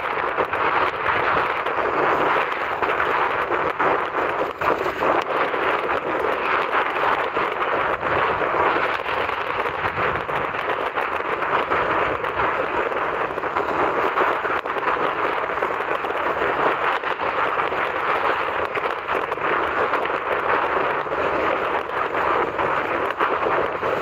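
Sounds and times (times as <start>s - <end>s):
surf on rocky shore: 0.0s - 24.0s
wind: 0.0s - 24.0s.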